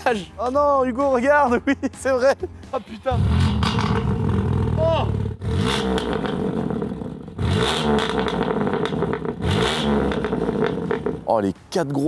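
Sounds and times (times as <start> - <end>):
car engine revving: 3.1 - 11.3.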